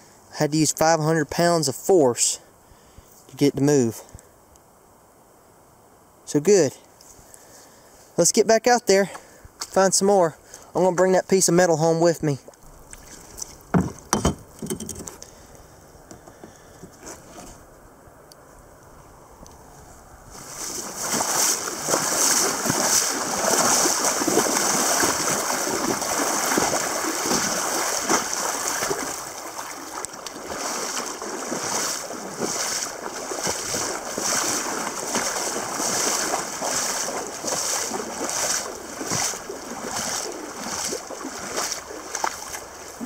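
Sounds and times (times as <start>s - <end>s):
river water rushing around kayak: 9.2s - 17.6s, 19.0s - 43.0s
small splashes and knocks: 12.4s - 15.3s, 20.4s - 43.0s.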